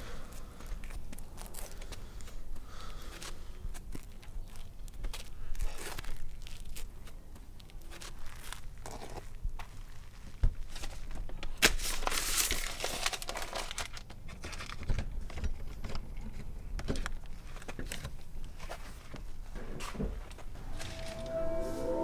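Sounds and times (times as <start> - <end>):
paper crumpling and crinkling: 0.4 - 15.4.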